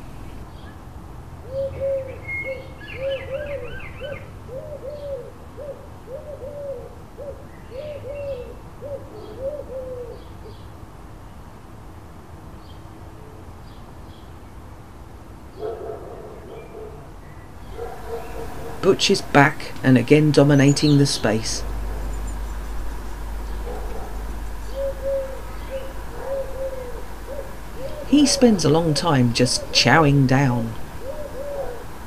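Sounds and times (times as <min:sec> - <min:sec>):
pigeon cooing: 0:01.4 - 0:10.6, 0:17.7 - 0:18.8, 0:21.6 - 0:32.0
small bird chirping: 0:20.4 - 0:31.9.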